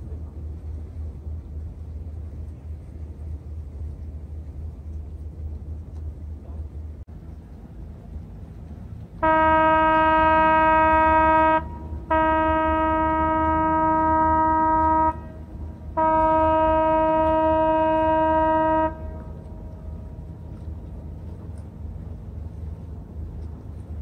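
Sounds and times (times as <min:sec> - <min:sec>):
ship's horn blasts: 0:09.2 - 0:21.4.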